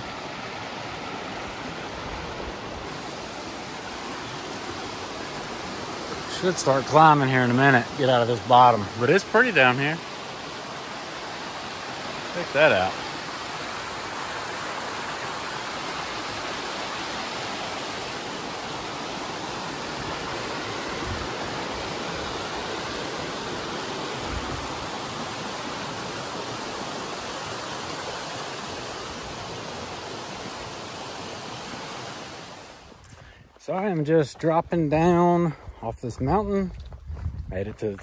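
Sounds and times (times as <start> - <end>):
creek rushing over rocks: 0.0 - 36.7
soft low thumps: 35.7 - 38.0.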